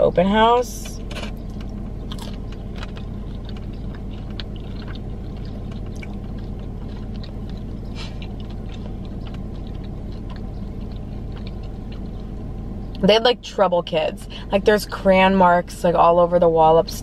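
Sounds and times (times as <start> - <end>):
car interior low hum: 0.0 - 17.0
chewing crispy chicken skin: 1.1 - 13.0.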